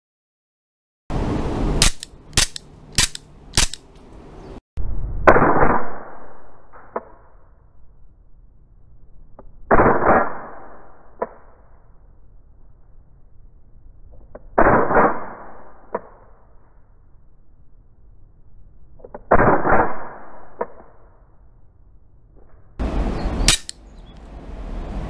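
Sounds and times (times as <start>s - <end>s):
airsoft pistol shots: 1.8s - 3.8s, 9.7s - 11.4s, 23.4s - 23.8s.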